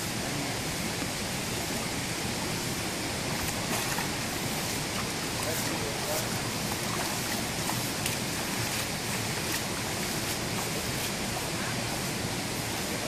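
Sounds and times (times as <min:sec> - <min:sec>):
water flowing in rocky stream: 0:00.0 - 0:13.0
faint splashes: 0:03.2 - 0:13.0.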